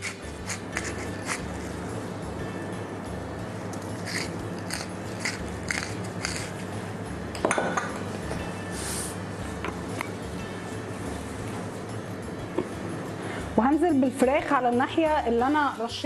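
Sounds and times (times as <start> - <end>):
pepper mill grinding: 0.0 - 1.8, 3.7 - 6.7
soft background music: 0.0 - 16.0.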